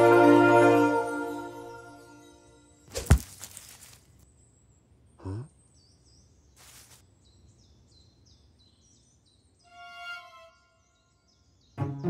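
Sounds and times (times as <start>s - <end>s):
apple thudding on grass: 2.9s - 4.1s, 6.6s - 7.0s
rustling: 2.9s - 4.2s, 6.6s - 7.0s
birds chirping: 2.9s - 9.9s
cartoon rabbit grunt: 5.2s - 5.6s.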